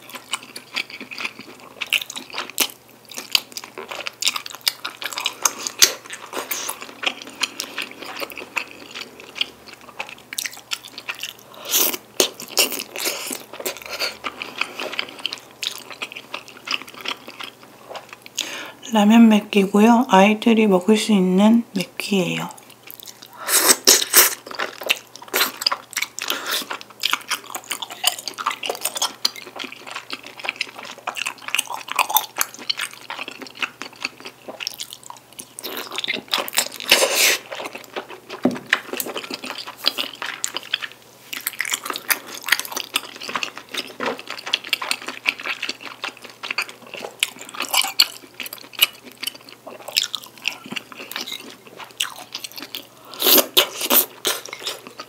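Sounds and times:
close-up chewing: 0.0s - 18.8s, 22.6s - 55.0s.

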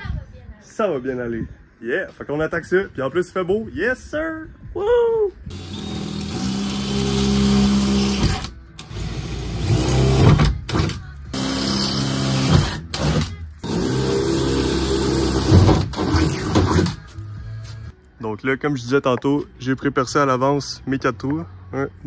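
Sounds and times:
power drill drilling into steel: 5.5s - 10.4s.

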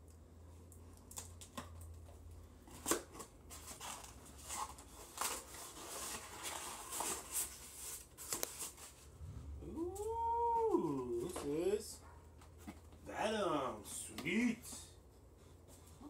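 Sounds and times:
low hum: 9.1s - 11.4s.

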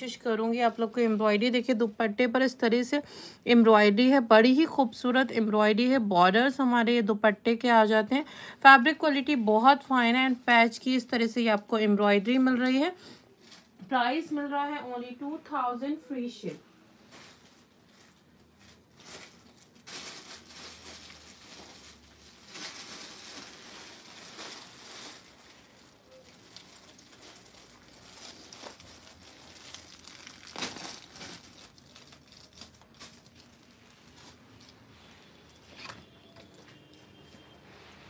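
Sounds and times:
fabric rustling: 16.9s - 38.0s
plastic packaging crinkling: 17.1s - 36.9s.

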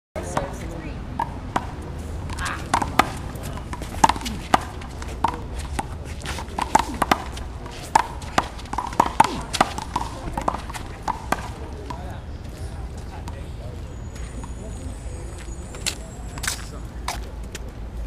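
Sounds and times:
handball smacking wall and court: 6.5s - 11.6s.

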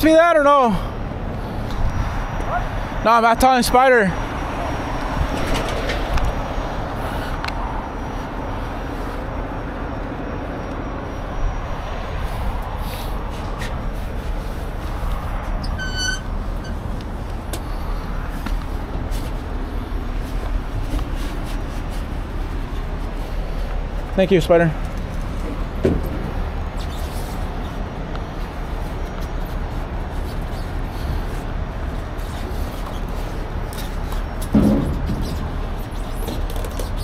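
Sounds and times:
road traffic: 0.0s - 37.0s
tow trucks idling: 0.0s - 37.0s
short high squeak: 15.6s - 16.8s.

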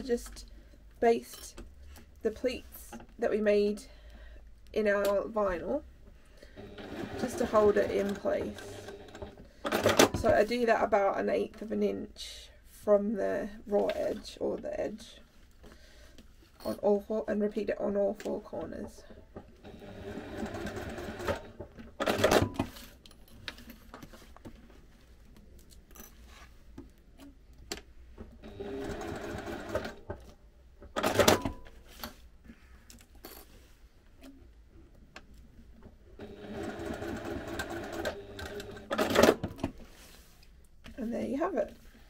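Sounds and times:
sewing machine stitching: 6.5s - 10.4s, 19.6s - 22.8s, 28.4s - 30.3s, 30.9s - 31.6s, 36.2s - 39.7s.

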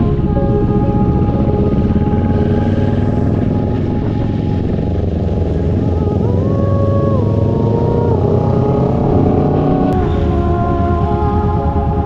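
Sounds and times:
held musical notes: 0.0s - 12.0s
motorcycle running: 0.0s - 12.0s.

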